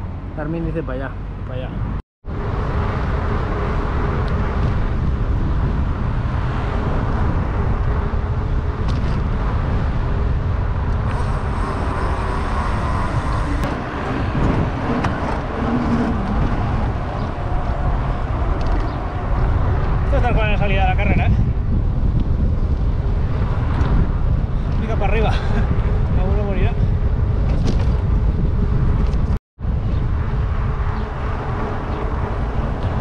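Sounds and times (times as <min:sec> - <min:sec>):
wind rush on microphone: 0:00.0 - 0:33.0
bike tyres humming on asphalt: 0:02.3 - 0:33.0.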